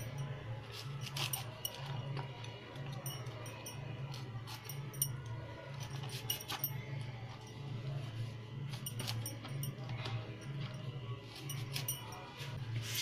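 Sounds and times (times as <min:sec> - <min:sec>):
knife cutting cauliflower: 0:00.6 - 0:01.6.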